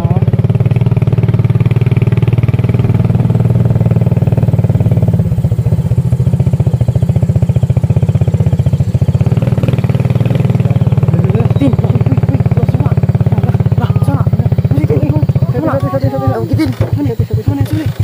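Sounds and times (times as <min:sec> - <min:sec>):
small motorcycle engine running: 0:00.0 - 0:18.0.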